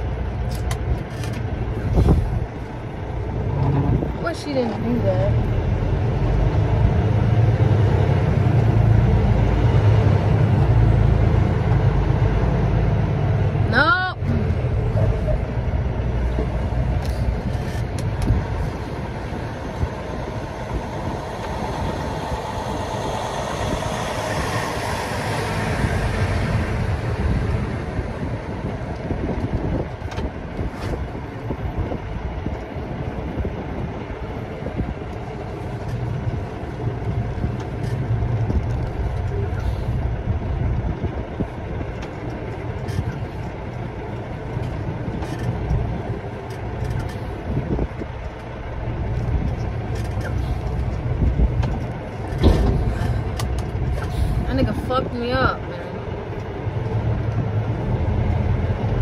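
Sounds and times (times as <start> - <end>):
truck engine and road rumble: 0.0 - 59.0
wind rushing: 1.6 - 13.7, 14.6 - 42.0.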